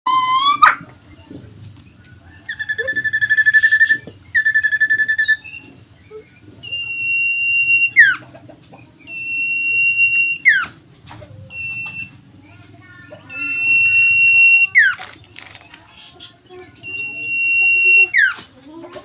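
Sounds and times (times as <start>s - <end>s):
bird whistles with downward slur: 2.5s - 5.7s.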